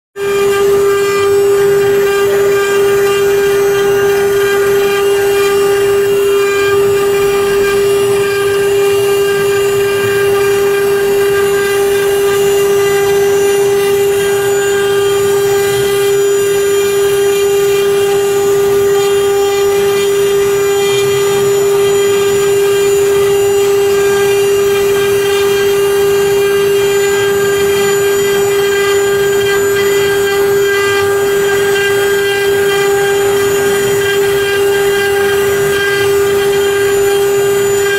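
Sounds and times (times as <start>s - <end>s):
router spindles whining: 0.2s - 37.9s.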